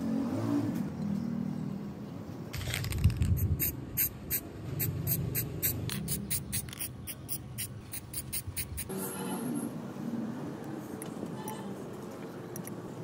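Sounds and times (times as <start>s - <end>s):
spray paint hissing from aerosol can: 2.6s - 8.9s.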